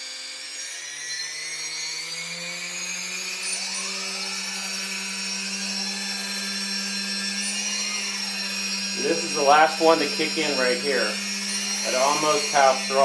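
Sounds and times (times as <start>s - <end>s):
electric motors whining: 0.0s - 13.0s.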